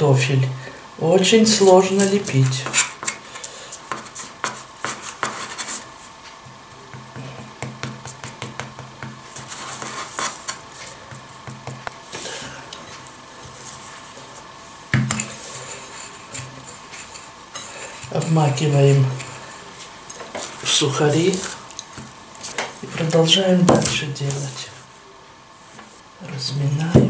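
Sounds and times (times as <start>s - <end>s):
fingers smoothing mashed potato: 1.8s - 12.0s.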